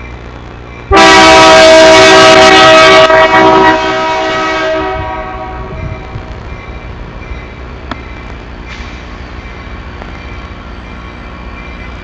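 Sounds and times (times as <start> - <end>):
locomotive air horn blast: 0.9 - 5.8.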